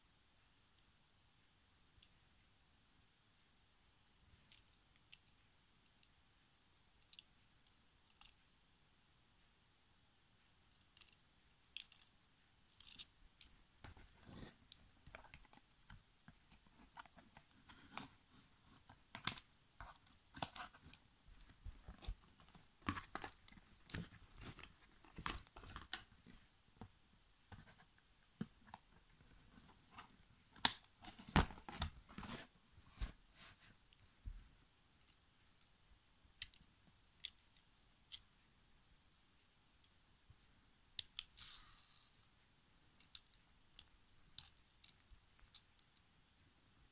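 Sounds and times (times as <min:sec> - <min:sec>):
toy cars scraping and clicking: 0:41.2 - 0:42.3.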